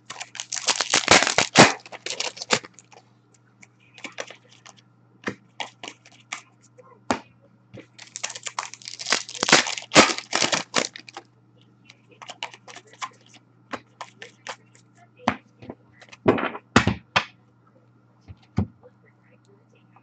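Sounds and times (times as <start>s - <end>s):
cards flicking and snapping: 0.0s - 3.0s, 8.0s - 11.2s.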